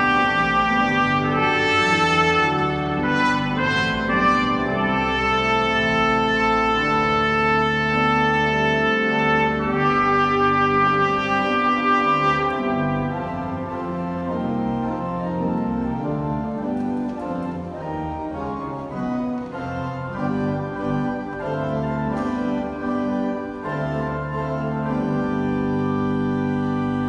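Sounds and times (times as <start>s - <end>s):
trumpet playing: 0.0s - 16.2s
church organ playing: 0.0s - 27.0s.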